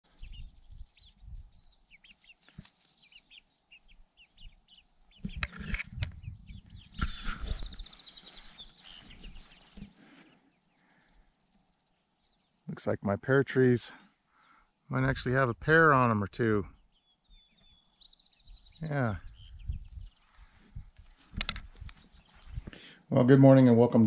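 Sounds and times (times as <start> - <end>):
chickens chirping: 0.1 - 10.4
insect trill: 0.1 - 22.6.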